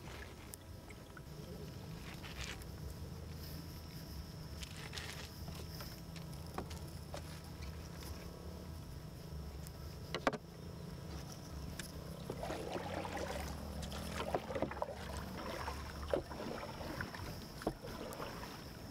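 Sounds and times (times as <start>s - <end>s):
plant stems rustling in boat: 0.0s - 8.4s, 12.1s - 18.9s
low rumble of wind and water: 0.0s - 18.9s.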